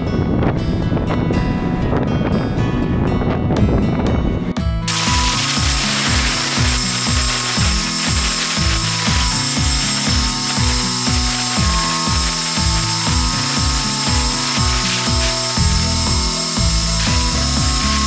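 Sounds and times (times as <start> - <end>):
beat with synth tones: 4.9 - 18.0.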